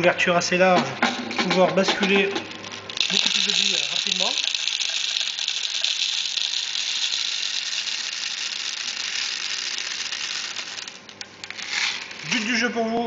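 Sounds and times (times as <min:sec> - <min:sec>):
ratchet clicking of winding wheel: 0:02.0 - 0:12.5.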